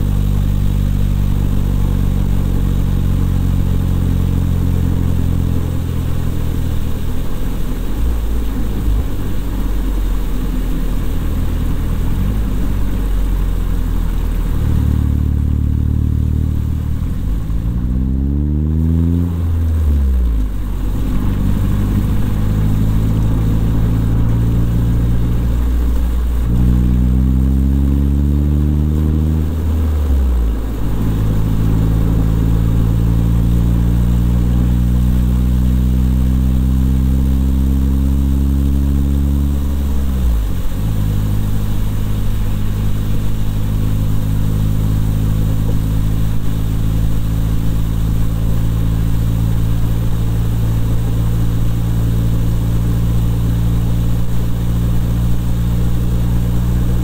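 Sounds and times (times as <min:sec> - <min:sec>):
car engine accelerating: 0:00.0 - 0:57.0
road noise: 0:00.0 - 0:57.0.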